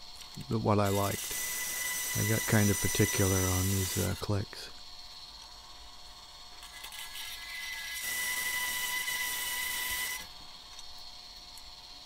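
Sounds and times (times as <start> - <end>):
bandsaw whining and cutting steel: 0.8 - 4.3, 6.7 - 10.3.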